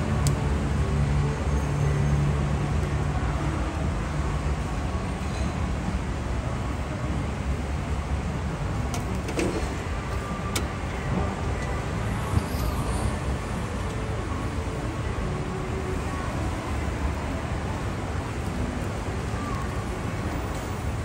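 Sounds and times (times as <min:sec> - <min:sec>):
gas grill rushing: 0:08.9 - 0:10.9.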